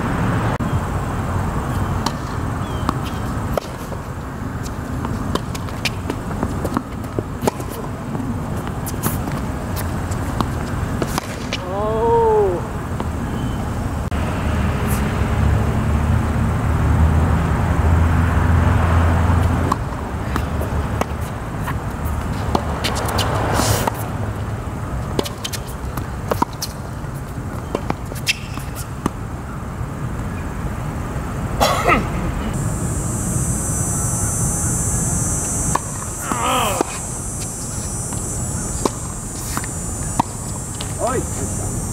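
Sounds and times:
shoe scuffs on hard court: 1.8s - 11.7s, 20.2s - 24.1s, 25.1s - 29.2s, 35.4s - 41.6s
tennis ball struck with rackets: 10.4s - 11.8s, 38.2s - 41.0s
steady high hiss: 20.6s - 41.9s.

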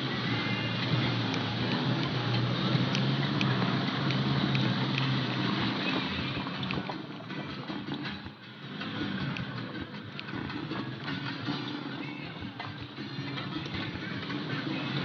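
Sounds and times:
vehicle engine and road noise: 0.0s - 15.0s.

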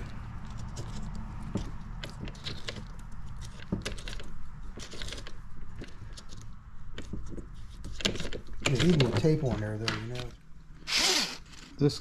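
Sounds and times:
drill bit scraping plastic: 10.8s - 11.8s.

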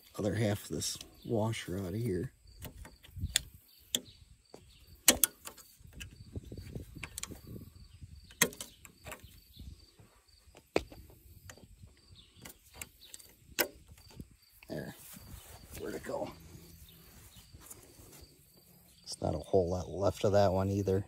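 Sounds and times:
sharp metallic clicks: 2.6s - 4.2s, 5.0s - 6.2s, 7.0s - 7.6s, 8.2s - 9.3s, 12.4s - 14.7s
soft handling rustle: 14.0s - 19.1s.

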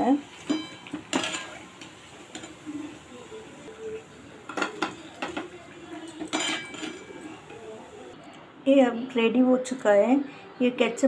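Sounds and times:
metal spoon knocking on metal pan: 0.5s - 1.5s, 4.5s - 5.5s, 6.2s - 7.1s.

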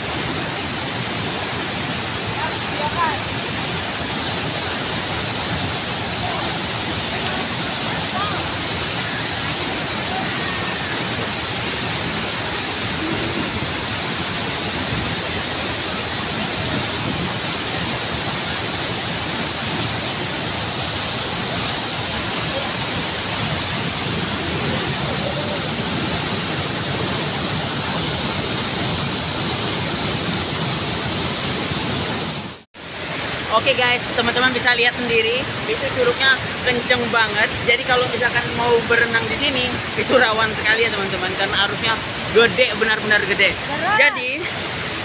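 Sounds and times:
waterfall and rushing river: 0.0s - 45.0s.

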